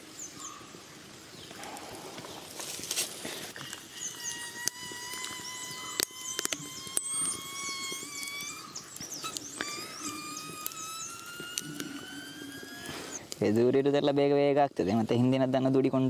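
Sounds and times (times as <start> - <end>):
wood fire crackling and popping: 0.0 - 13.6
high wavering squeaks: 3.6 - 13.4
thin whistling tone rising in pitch: 3.9 - 13.2.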